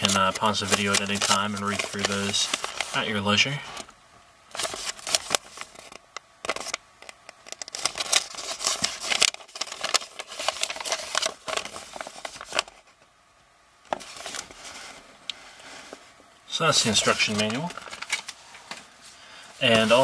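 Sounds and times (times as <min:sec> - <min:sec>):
paper rustling and crackling: 0:00.0 - 0:03.9, 0:04.5 - 0:13.0, 0:13.9 - 0:15.0, 0:16.8 - 0:18.9, 0:19.6 - 0:20.0.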